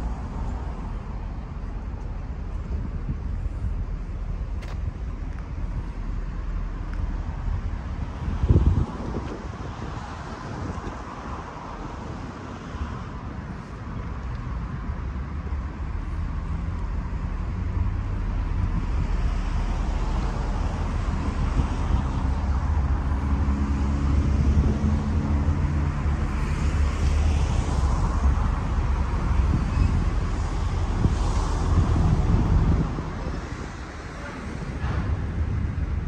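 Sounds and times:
large engine low hum: 0.0s - 36.0s
road traffic: 0.0s - 36.0s.

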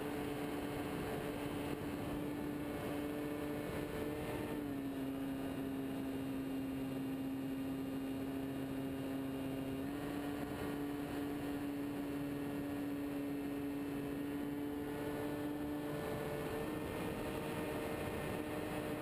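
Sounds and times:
model plane propeller droning: 0.0s - 19.0s.

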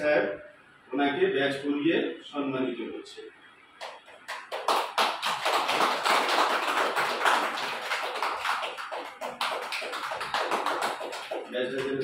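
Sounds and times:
people applauding: 3.8s - 12.0s.

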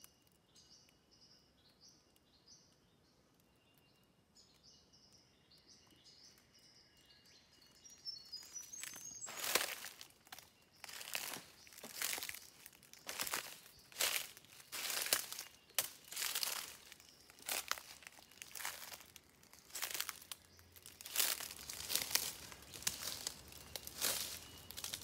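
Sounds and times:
footsteps crunching dry leaves: 8.4s - 25.0s.

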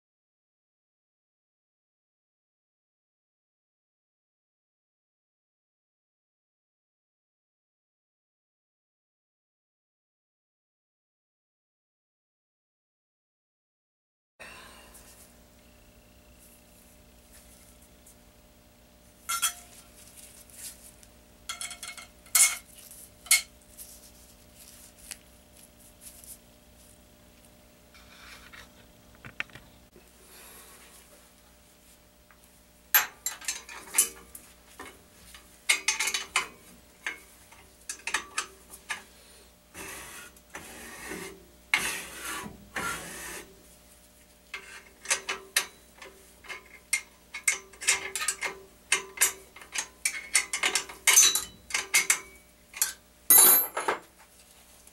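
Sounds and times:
faint steady hum: 14.4s - 54.9s
metal parts clinking and scraping: 19.3s - 20.7s, 21.5s - 23.5s, 33.0s - 37.3s, 44.6s - 54.1s.

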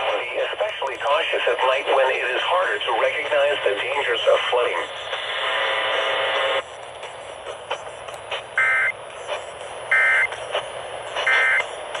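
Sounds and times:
radio hiss: 0.0s - 6.7s.

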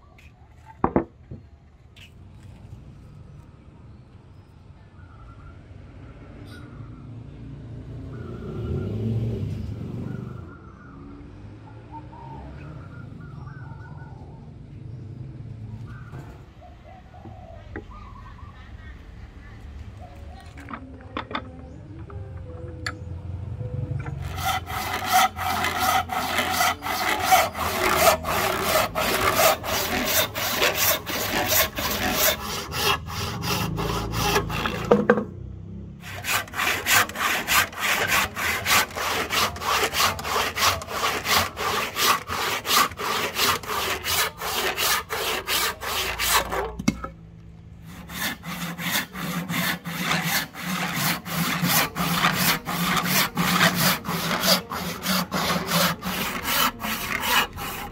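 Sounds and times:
hand saw cutting wood: 24.0s - 35.3s, 36.0s - 47.1s, 47.8s - 57.9s.

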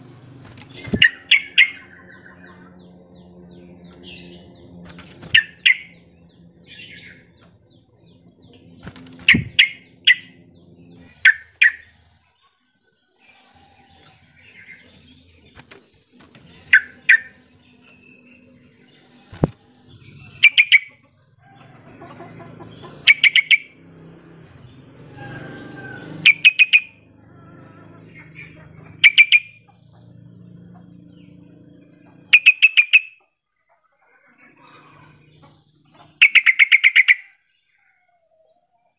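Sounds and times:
bird chattering calls: 0.6s - 3.0s, 5.2s - 7.8s, 8.8s - 10.4s, 11.0s - 12.0s, 16.5s - 17.5s, 20.2s - 21.1s, 22.0s - 23.8s, 25.9s - 27.0s, 28.0s - 30.0s, 30.7s - 33.3s, 34.2s - 37.4s.

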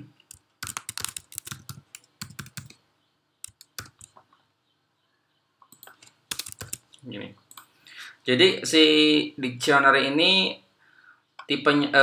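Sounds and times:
keyboard typing: 0.2s - 2.8s, 3.4s - 4.4s, 5.6s - 7.7s.

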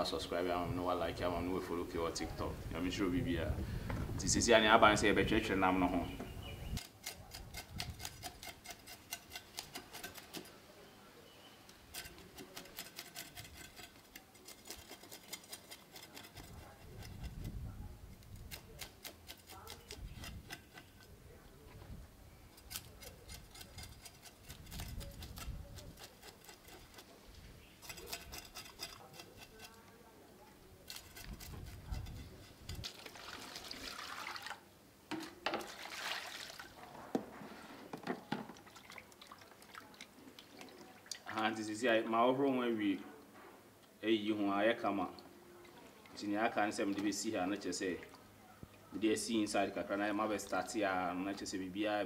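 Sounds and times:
knife scraping fish scales: 6.6s - 10.6s, 11.8s - 17.6s, 18.2s - 21.1s, 22.5s - 30.0s, 30.8s - 33.1s.

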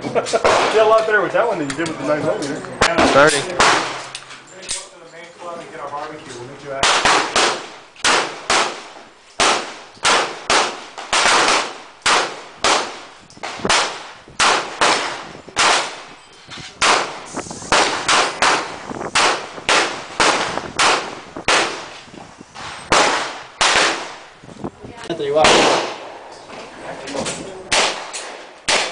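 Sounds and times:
handgun shots with echo: 25.4s - 26.1s, 27.7s - 28.9s.

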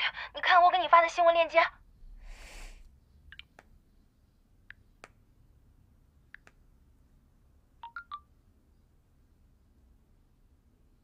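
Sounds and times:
smartphone screen taps: 6.4s - 6.6s.

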